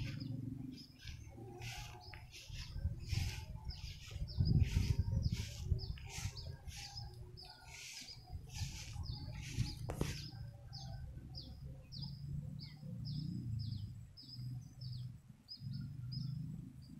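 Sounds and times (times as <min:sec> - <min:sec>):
low rumble: 0:00.0 - 0:10.3
rhythmic swishing: 0:00.0 - 0:11.1
bird chirping: 0:00.0 - 0:16.9.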